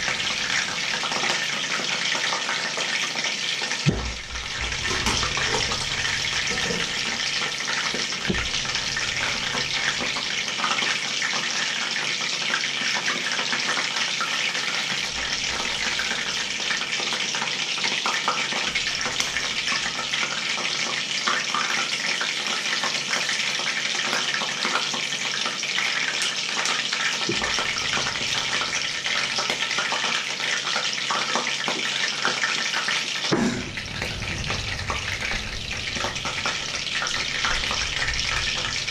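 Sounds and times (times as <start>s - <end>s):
pans hissing and crackling: 0.0s - 38.9s.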